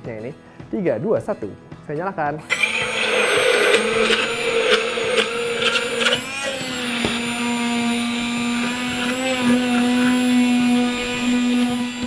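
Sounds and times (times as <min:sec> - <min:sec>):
electric hand blender whisking: 0:02.4 - 0:12.0.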